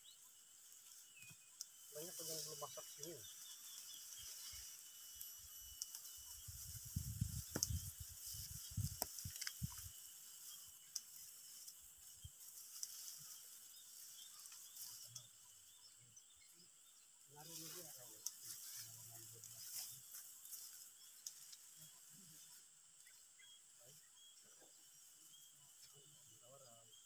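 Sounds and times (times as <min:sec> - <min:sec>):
faint high hiss: 0:00.0 - 0:16.6
stalks rustling: 0:00.6 - 0:15.4, 0:17.4 - 0:22.5.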